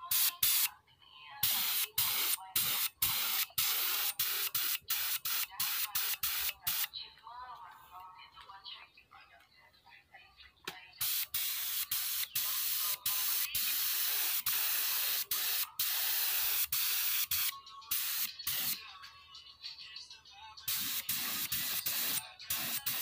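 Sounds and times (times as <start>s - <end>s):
spray gun hissing: 11.0s - 18.7s, 20.7s - 23.0s.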